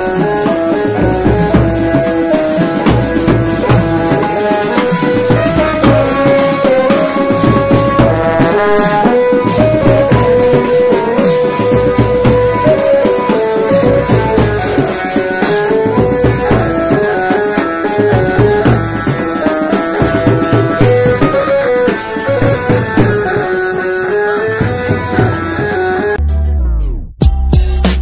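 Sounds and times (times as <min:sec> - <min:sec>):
hand-drum beat: 0:00.0 - 0:26.2
stepping melody: 0:03.7 - 0:10.0.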